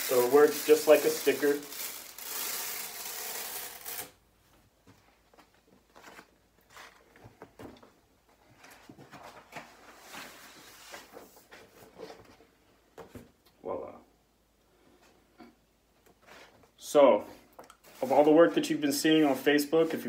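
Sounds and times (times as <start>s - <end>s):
plastic sheet crinkling: 0.0s - 4.2s
vinyl peeling off a wall: 0.0s - 4.2s.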